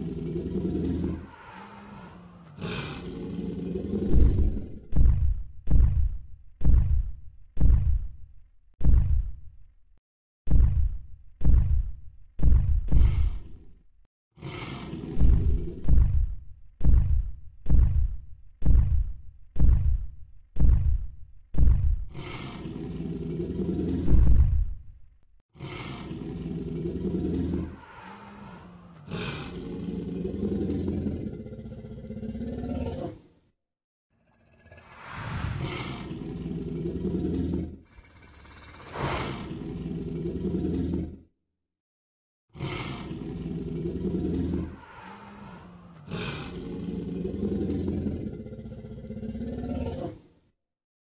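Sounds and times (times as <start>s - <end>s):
dinosaur roar: 0.0s - 5.0s, 14.4s - 16.2s, 22.1s - 24.6s, 25.6s - 33.3s, 34.1s - 41.3s, 42.6s - 50.3s
low growl: 0.0s - 5.0s, 13.0s - 16.3s, 22.1s - 24.8s, 25.6s - 33.3s, 34.1s - 41.3s, 42.6s - 50.3s.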